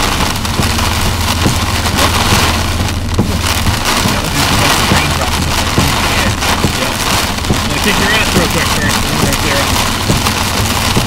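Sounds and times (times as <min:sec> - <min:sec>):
heavy rain drumming on windshield: 0:00.0 - 0:11.0
low vehicle drone: 0:00.0 - 0:11.0.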